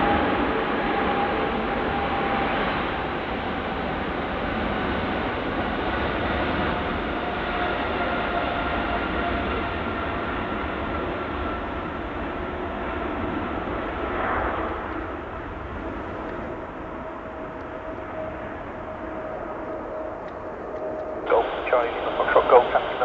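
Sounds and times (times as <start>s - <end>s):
jet engines at takeoff: 0.0s - 23.0s
faint whining tones: 14.8s - 23.0s.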